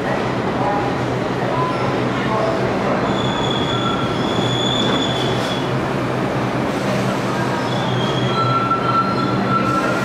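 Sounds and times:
train wheels rumbling on rail: 0:00.0 - 0:10.0
high-pitched wheel squeal: 0:07.6 - 0:10.0.

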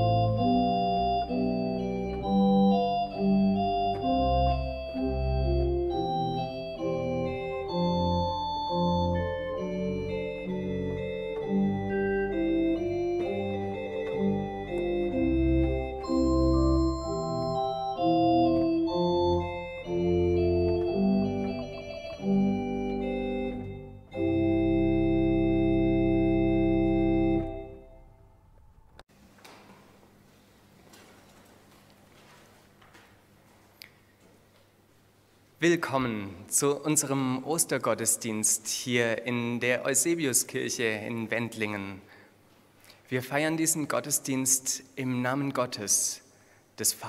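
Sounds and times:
pipe organ playing: 0:00.0 - 0:29.1.

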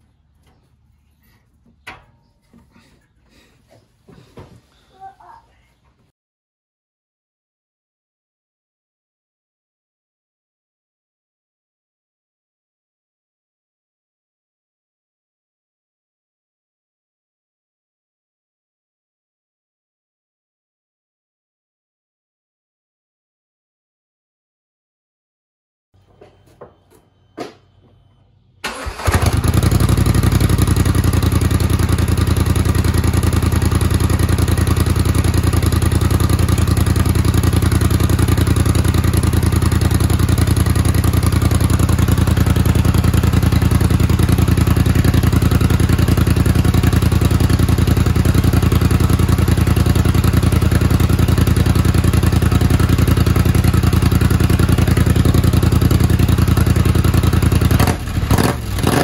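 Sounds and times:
engine starting and idling: 0:28.6 - 0:52.1.

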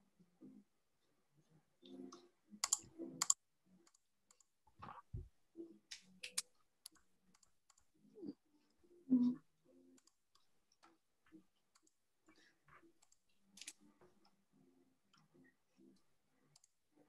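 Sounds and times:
keyboard and mouse clicks: 0:02.6 - 0:05.3, 0:05.9 - 0:07.9, 0:13.0 - 0:13.8.

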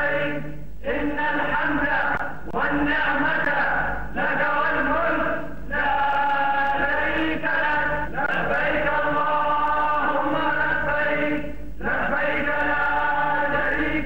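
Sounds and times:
man chanting: 0:01.0 - 0:07.8.

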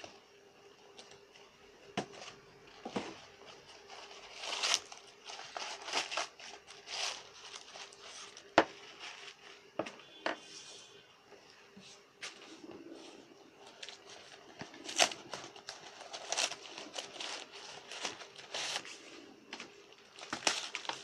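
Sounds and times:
paper wrapping crinkling: 0:02.0 - 0:09.7, 0:12.2 - 0:21.0.

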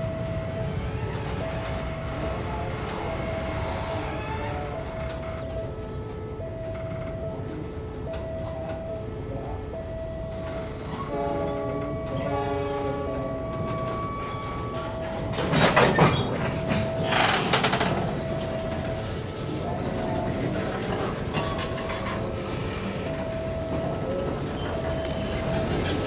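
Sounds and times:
train wheels clattering on rails: 0:00.0 - 0:08.8, 0:10.3 - 0:26.0
steady repeating beep: 0:06.4 - 0:26.0
locomotive horn chord: 0:10.5 - 0:20.5.

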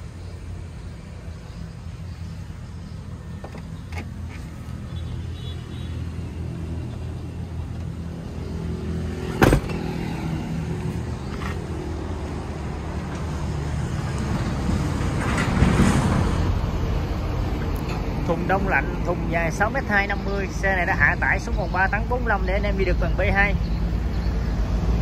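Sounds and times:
cab door slamming: 0:09.2 - 0:10.2.

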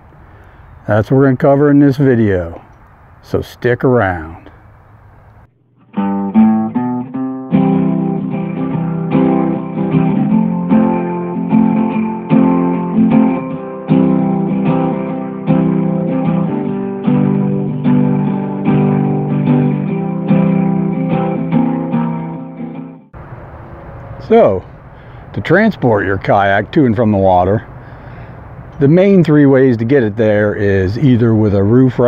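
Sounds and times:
guitar picking and strumming: 0:04.1 - 0:32.0.

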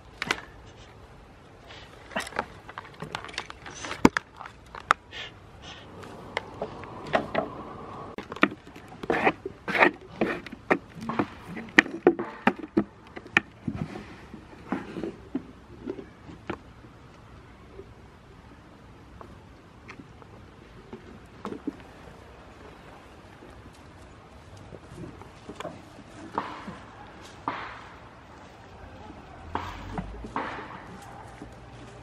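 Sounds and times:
goats chewing: 0:00.0 - 0:18.0, 0:19.0 - 0:32.0.

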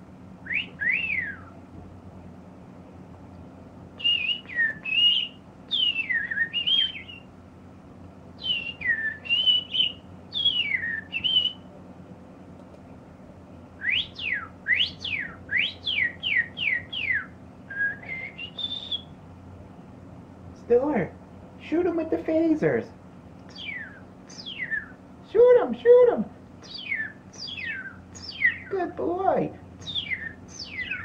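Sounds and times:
person whistling: 0:00.5 - 0:01.5, 0:04.0 - 0:07.2, 0:08.4 - 0:11.6, 0:13.8 - 0:19.1.

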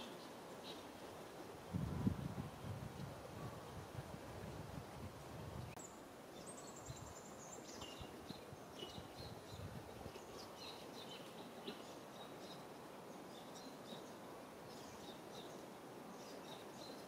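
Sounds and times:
steady hiss: 0:00.0 - 0:17.0
small birds chirping: 0:05.7 - 0:17.0.

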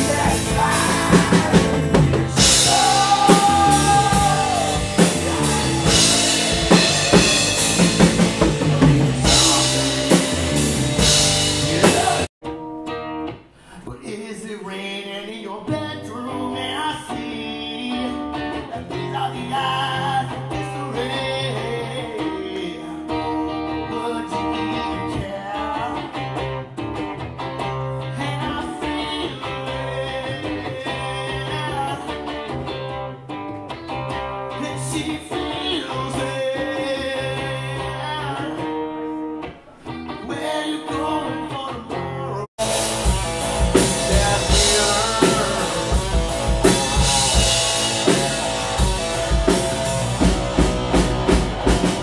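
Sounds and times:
person singing: 0:00.0 - 0:12.3, 0:13.7 - 0:26.4, 0:28.0 - 0:32.4, 0:34.5 - 0:52.0
steady low bass line: 0:00.0 - 0:12.3, 0:42.6 - 0:52.0
guitar: 0:00.0 - 0:52.0.

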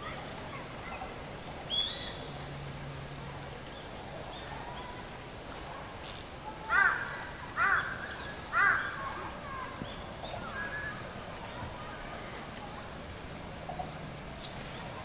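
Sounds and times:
crow cawing: 0:06.7 - 0:09.0.

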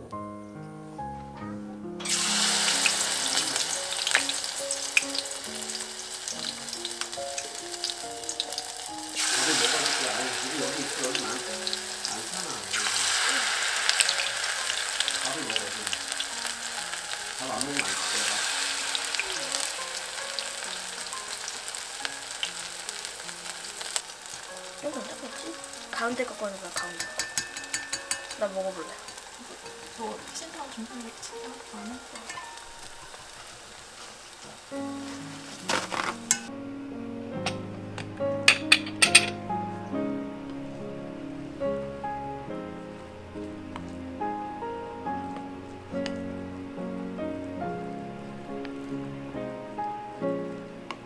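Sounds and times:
batter frying in hot oil: 0:02.0 - 0:36.5
oil crackling and popping: 0:02.0 - 0:36.5.

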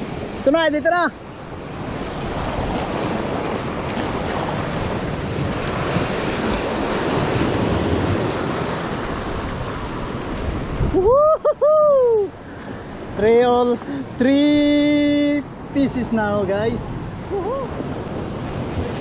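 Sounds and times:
surf breaking over rocks: 0:00.0 - 0:17.1
wind buffeting microphone: 0:01.2 - 0:13.2.

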